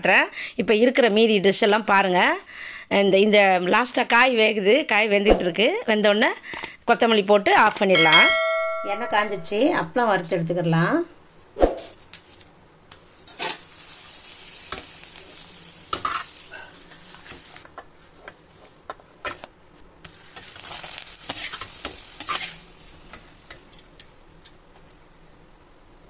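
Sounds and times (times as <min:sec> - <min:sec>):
papads sizzling in hot oil: 0:11.3 - 0:26.0.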